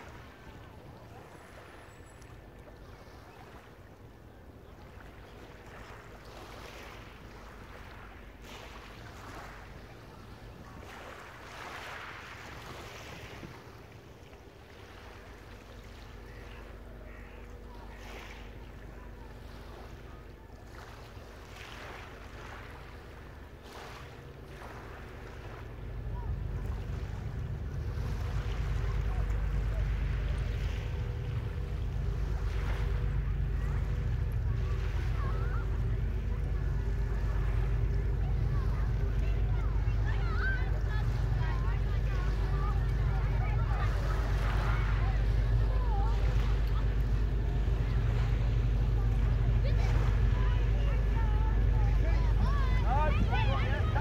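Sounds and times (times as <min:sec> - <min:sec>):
waves lapping on shingle: 0:00.0 - 0:54.0.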